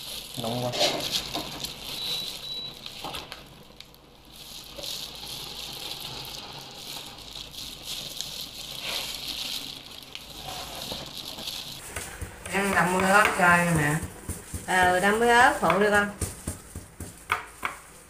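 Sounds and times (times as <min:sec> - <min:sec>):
meat tearing: 0:00.0 - 0:11.8
plastic gloves crinkling: 0:00.0 - 0:18.0.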